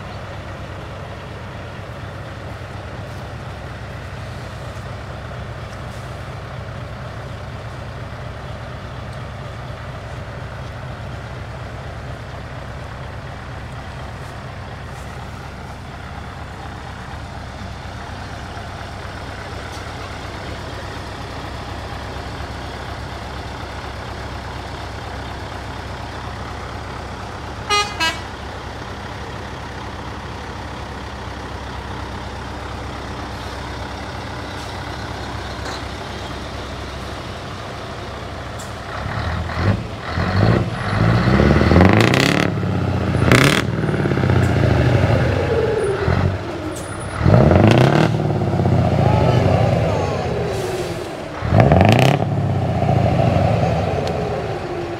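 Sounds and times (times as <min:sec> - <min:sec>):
truck engine rumble: 0:00.0 - 0:54.9
trucks passing close: 0:00.0 - 0:54.9
truck horn toots: 0:27.6 - 0:28.3
short sharp horn blasts: 0:27.7 - 0:28.3.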